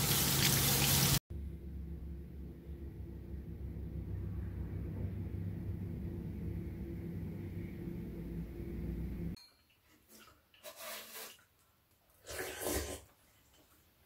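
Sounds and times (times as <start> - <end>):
low hum: 1.3 - 9.4.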